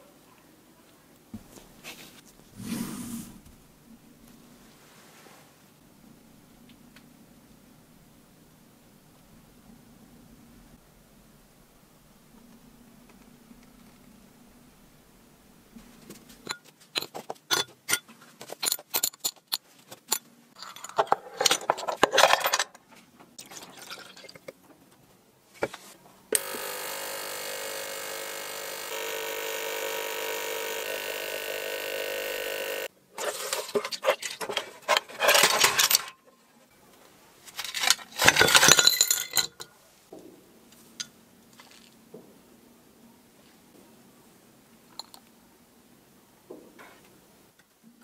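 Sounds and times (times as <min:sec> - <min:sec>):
metal parts clinking and rattling: 0:16.4 - 0:22.8, 0:33.2 - 0:36.4, 0:37.5 - 0:39.7
ultrasonic cleaner buzzing: 0:26.4 - 0:32.9.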